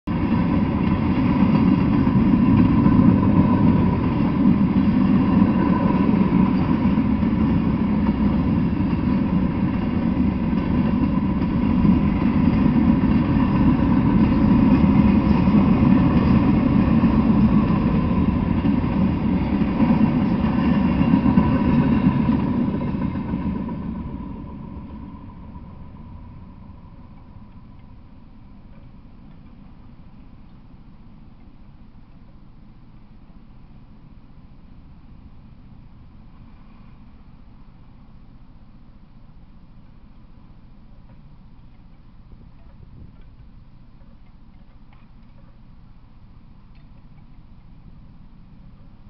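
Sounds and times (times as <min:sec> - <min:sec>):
freight train wheels rumbling: 0:00.1 - 0:30.4.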